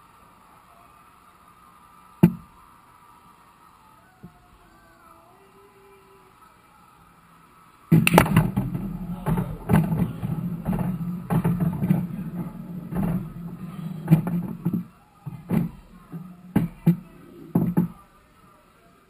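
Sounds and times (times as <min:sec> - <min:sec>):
sharp knocks: 0:02.2 - 0:02.5, 0:07.9 - 0:18.0
balls rolling across table: 0:07.9 - 0:18.1
pool balls clacking: 0:07.9 - 0:18.1.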